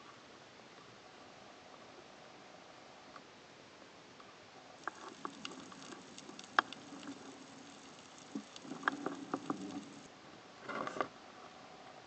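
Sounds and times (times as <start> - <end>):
underwater clicks and crackles: 4.8 - 10.1
faint low hum: 4.8 - 10.2.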